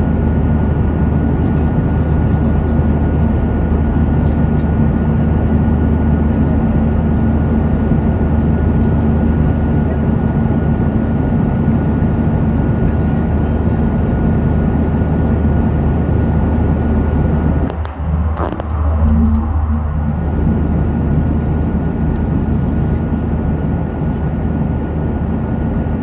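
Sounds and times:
airliner cabin engine rush: 0.0s - 26.0s
faint high whine: 16.8s - 22.6s.

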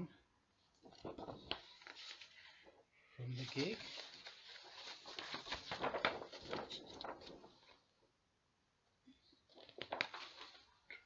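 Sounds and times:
paper rustling: 0.7s - 8.0s, 9.5s - 11.0s.

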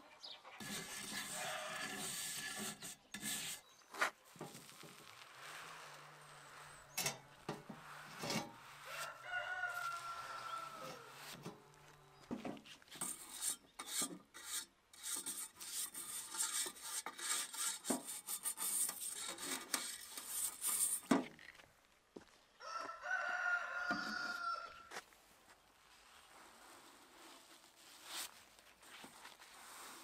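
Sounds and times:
brush scrubbing a metal pot: 0.6s - 10.2s, 12.9s - 21.1s
rooster crowing: 8.8s - 11.2s, 22.6s - 24.9s.

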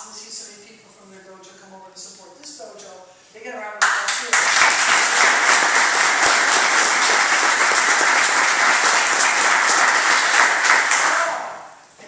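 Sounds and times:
people applauding: 3.8s - 11.7s.

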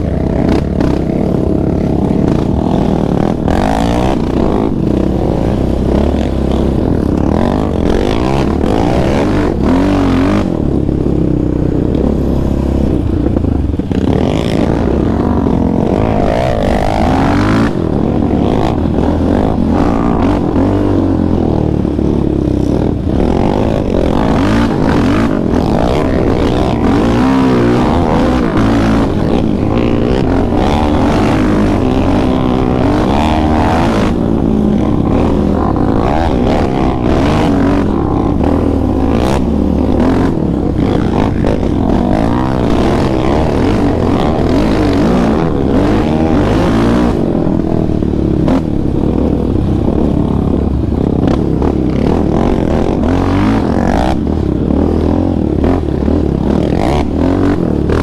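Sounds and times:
quad engine revving: 0.0s - 58.0s.

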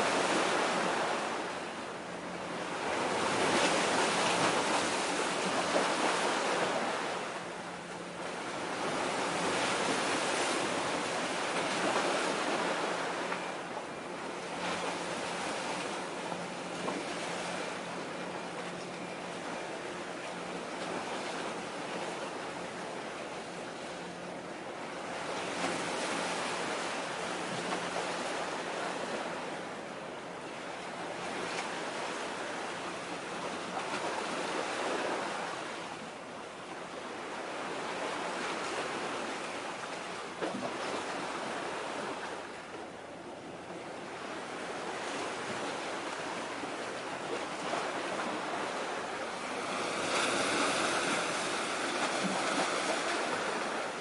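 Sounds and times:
waves at shoreline: 0.0s - 54.0s
wind: 0.0s - 54.0s.

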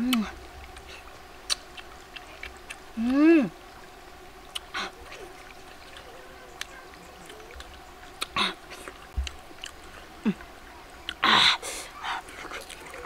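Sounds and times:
woman humming mmm: 0.0s - 0.4s, 3.0s - 3.6s, 10.2s - 11.8s.

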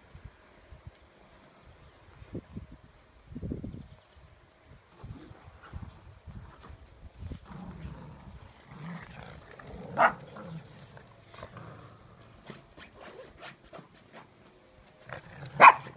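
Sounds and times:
dogs growling: 7.4s - 13.2s
dog barking: 10.0s - 10.2s, 15.6s - 15.9s.

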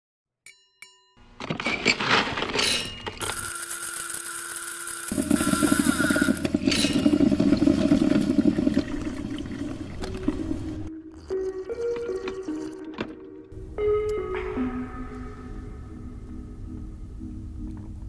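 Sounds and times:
coffee grinder motor hum: 3.2s - 7.6s
coffee beans grinding: 3.2s - 9.0s.

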